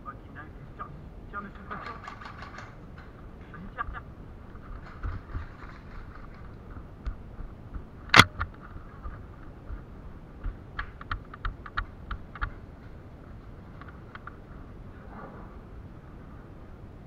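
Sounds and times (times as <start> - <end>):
footsteps and gear clicks: 1.6 - 14.5
sharp loud click: 8.1 - 8.5.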